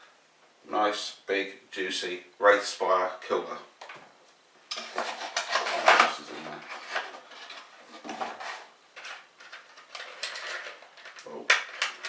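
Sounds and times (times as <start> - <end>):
cardboard packaging handled: 4.8 - 11.1.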